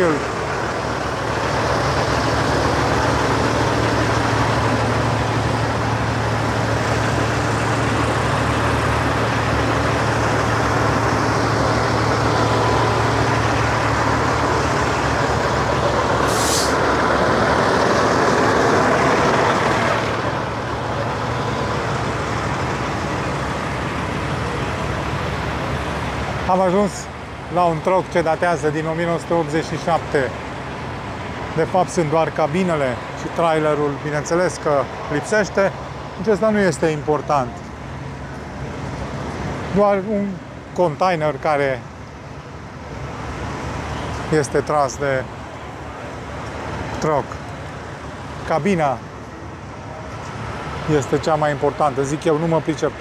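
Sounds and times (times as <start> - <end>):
diesel truck engine idling: 0.0 - 53.0
vehicle noise: 0.0 - 53.0
air hiss: 16.2 - 16.8.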